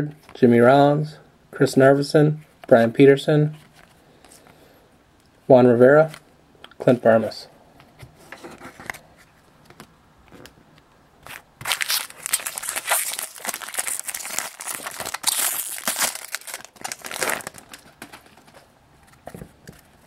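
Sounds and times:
foil wrapper tearing and crinkling: 11.3 - 18.4.

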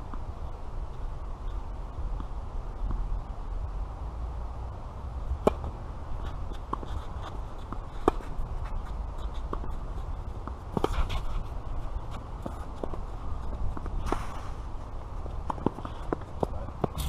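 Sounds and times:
shoe scuffs on clay court: 5.4 - 14.8, 15.4 - 17.0.

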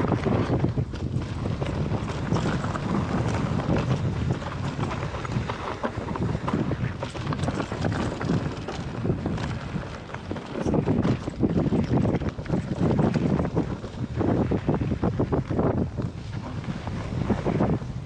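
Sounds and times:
bike rattling: 0.0 - 18.0
wind rushing over microphone: 0.0 - 18.0
tyres crunching over loose stones: 0.1 - 14.4.

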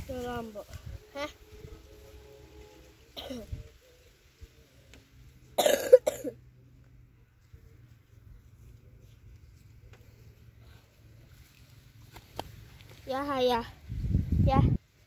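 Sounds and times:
person coughing: 3.2 - 3.6, 5.6 - 6.4.

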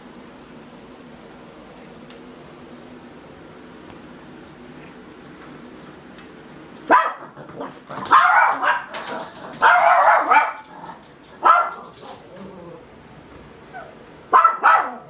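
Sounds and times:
dog barking: 6.9 - 10.7, 11.4 - 12.2, 14.3 - 15.0.

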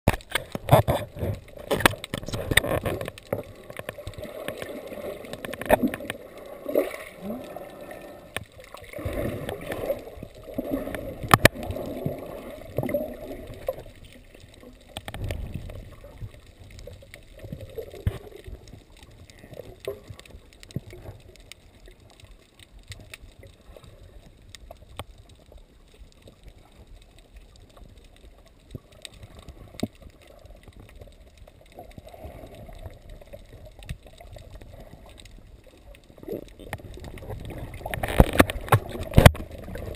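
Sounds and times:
sharp clicks and knocks: 0.1 - 4.7, 36.6 - 39.6
water gurgling underwater: 0.1 - 22.4, 23.0 - 39.9.

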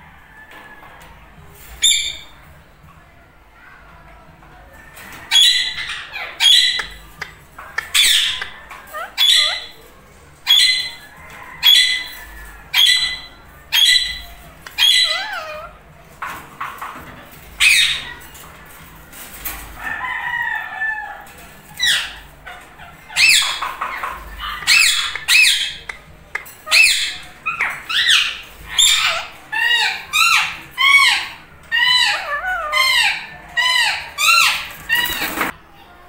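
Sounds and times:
parakeet warbling chatter: 5.3 - 9.8, 12.7 - 15.8, 21.8 - 35.5
parakeets squawking: 5.3 - 15.8, 17.4 - 18.3, 21.2 - 35.5.

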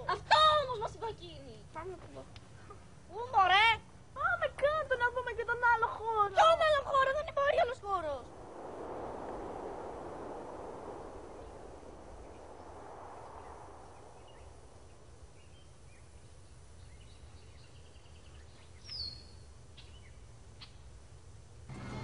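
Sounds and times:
steady low rumble: 6.8 - 18.2
rushing noise: 8.0 - 15.3
faint bird chirps: 11.3 - 20.9.

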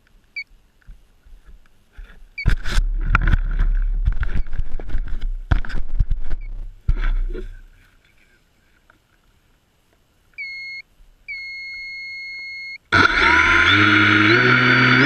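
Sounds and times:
electronic beeps: 10.4 - 12.8.

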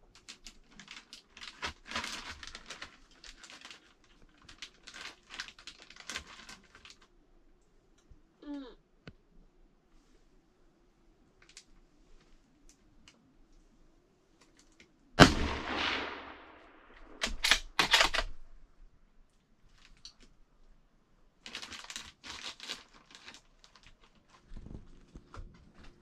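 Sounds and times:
light clicks and rustling: 11.4 - 13.7, 14.3 - 15.0, 19.2 - 20.4
gunshot: 15.2 - 18.1
sharp clicks and knocks: 17.1 - 18.4.

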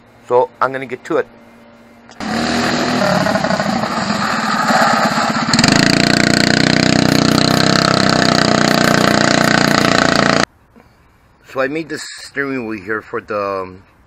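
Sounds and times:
go-kart engine running: 2.2 - 10.5.

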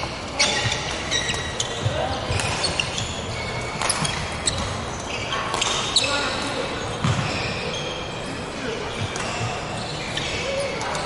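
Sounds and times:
voices chattering: 0.2 - 11.0
shoes squeaking on wooden floor: 0.3 - 8.1.

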